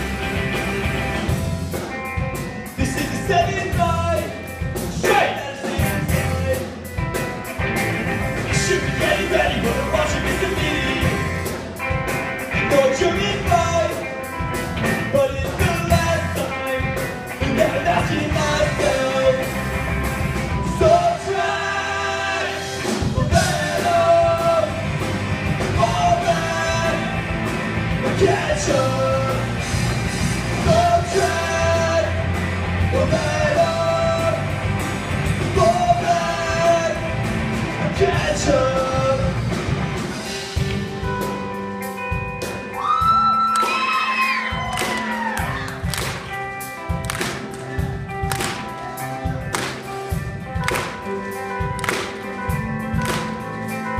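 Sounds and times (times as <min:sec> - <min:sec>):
distorted electric guitars: 0:00.0 - 0:53.9
live punk rock band: 0:00.0 - 0:53.9
person singing: 0:08.5 - 0:11.3, 0:15.1 - 0:19.8, 0:20.5 - 0:25.0, 0:25.6 - 0:29.8, 0:30.5 - 0:34.6, 0:35.5 - 0:39.5.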